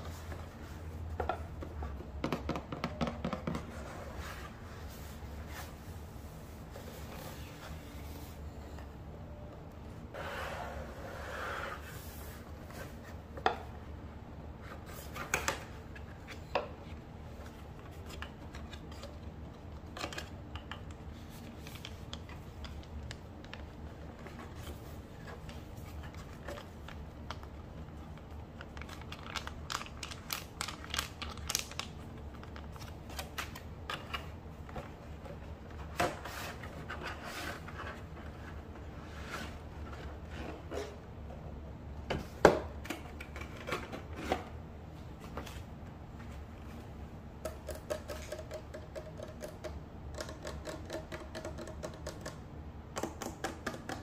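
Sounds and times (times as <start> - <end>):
low steady hum: 0.0 - 54.0
packaging taps and crinkles: 28.6 - 33.6.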